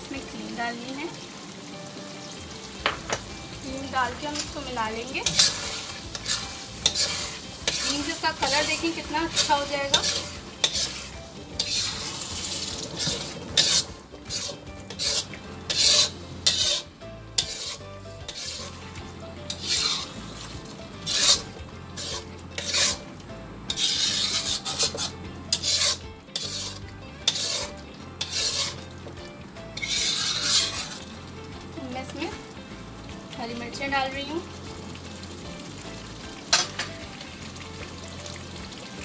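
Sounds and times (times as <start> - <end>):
steel spoon scraping metal pan: 4.1 - 23.1, 23.7 - 29.1, 29.7 - 31.1, 36.5 - 36.9.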